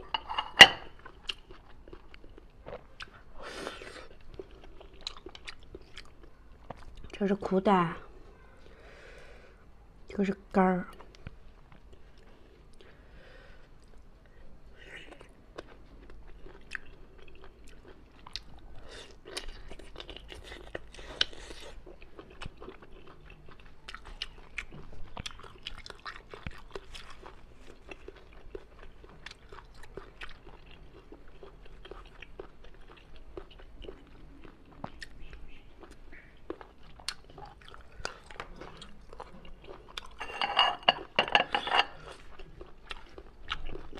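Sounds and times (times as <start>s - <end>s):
chewing with mouth clicks: 0.9s - 7.2s, 14.9s - 40.4s, 41.8s - 43.9s.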